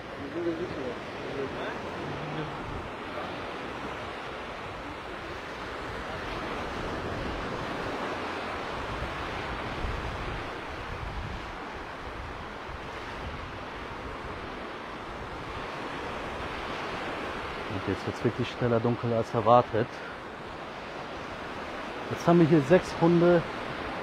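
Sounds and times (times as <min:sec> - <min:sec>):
wind buffeting microphone: 0:00.0 - 0:17.8
waves washing onto sandy shore: 0:00.0 - 0:24.0.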